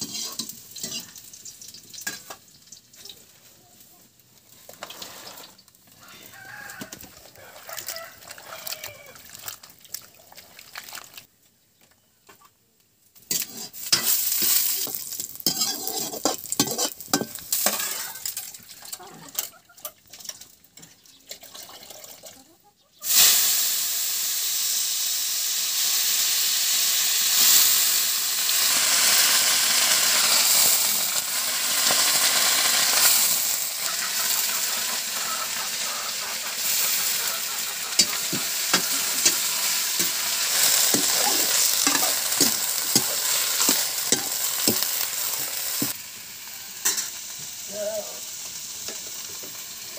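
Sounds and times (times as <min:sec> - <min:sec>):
cabbage sizzling in hot oil: 0:00.0 - 0:09.8, 0:13.1 - 0:19.5, 0:23.0 - 0:49.9
wet cabbage rustling and squelching: 0:07.3 - 0:11.3.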